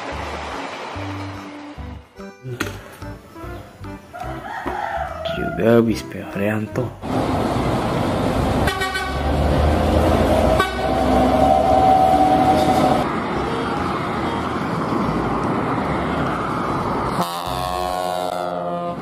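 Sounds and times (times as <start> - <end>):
bus diesel engine driving by: 0.0 - 3.8, 7.0 - 19.0
road rumble: 0.0 - 19.0
bus horn: 8.5 - 9.4, 10.3 - 13.0, 17.1 - 19.0.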